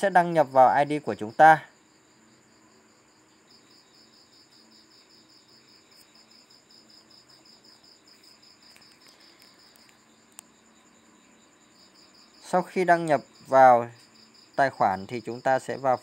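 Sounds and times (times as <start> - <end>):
cricket chirping: 0.0 - 16.0.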